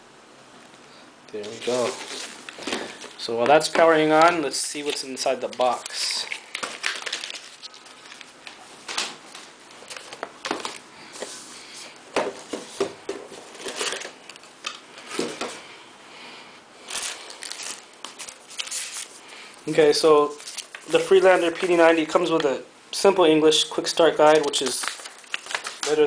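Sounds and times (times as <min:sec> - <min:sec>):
plastic bags crinkling: 0:01.4 - 0:10.9, 0:16.8 - 0:19.5, 0:20.2 - 0:22.1, 0:24.2 - 0:26.0.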